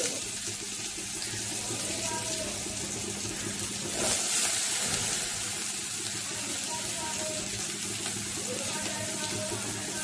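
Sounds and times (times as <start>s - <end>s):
greens sizzling in hot oil: 0.0s - 10.0s.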